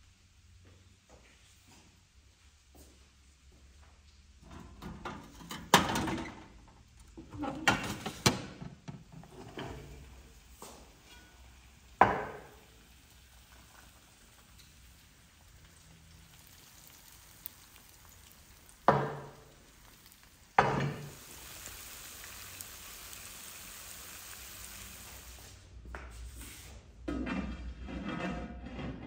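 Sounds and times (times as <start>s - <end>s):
steady sizzle: 4.7s - 25.7s
metal pan clanking on stovetop: 20.6s - 21.2s.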